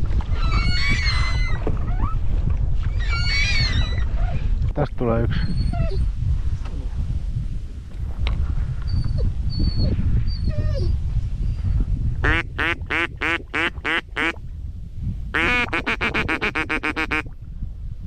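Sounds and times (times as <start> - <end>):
wind rumble on microphone: 0.0 - 18.0
duck quacking: 12.2 - 14.3, 15.4 - 17.2.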